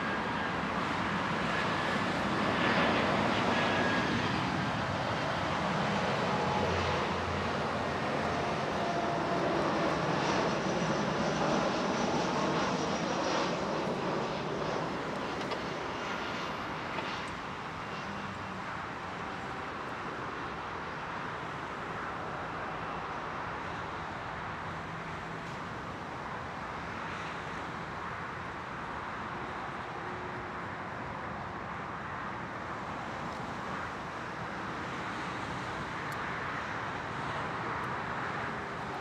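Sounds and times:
jet airliner passing overhead: 0:00.0 - 0:39.0.

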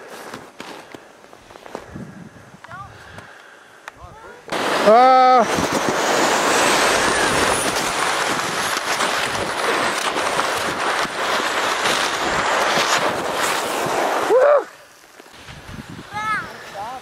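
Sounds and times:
wind buffeting microphone: 0:01.8 - 0:03.3, 0:04.0 - 0:14.2, 0:15.4 - 0:17.0
sliding on icy snow: 0:04.1 - 0:17.0
person crying out: 0:14.3 - 0:14.7.

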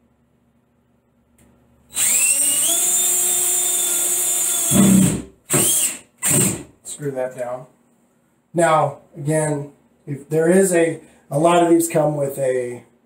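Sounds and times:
cordless drill driving a screw: 0:01.9 - 0:06.6.

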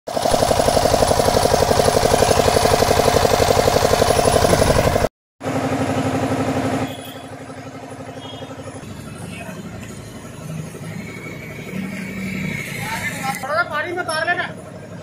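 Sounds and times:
engine idling: 0:00.1 - 0:11.5.

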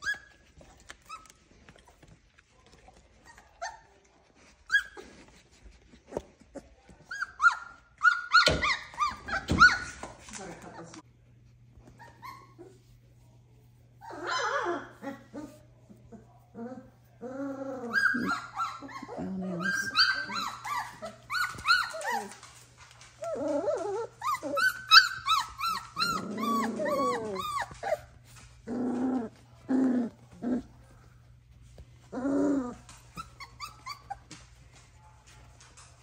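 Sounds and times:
puppies yelping and squealing: 0:07.1 - 0:10.1, 0:11.9 - 0:12.8, 0:14.0 - 0:15.6, 0:17.5 - 0:22.5, 0:23.2 - 0:29.4, 0:32.1 - 0:34.4.

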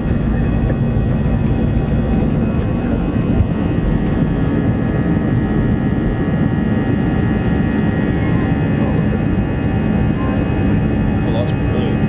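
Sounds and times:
jet engines rumbling with whine: 0:00.0 - 0:12.0.

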